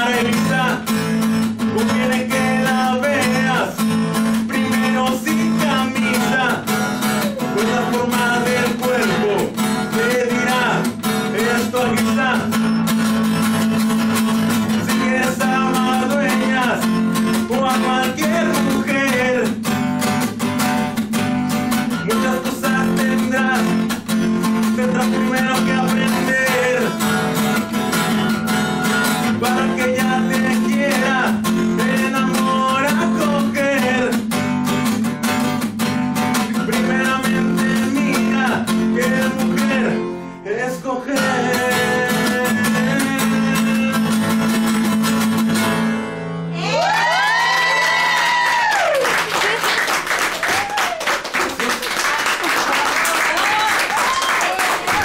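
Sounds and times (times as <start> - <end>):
man singing: 0.0 - 12.9, 14.1 - 19.8, 21.7 - 34.6, 36.3 - 45.1
acoustic guitar strumming: 0.0 - 46.6.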